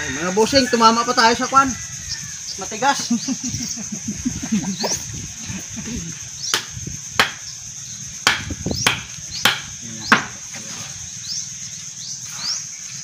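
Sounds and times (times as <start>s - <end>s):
stick striking machete blade: 6.6s - 7.4s, 8.3s - 10.4s.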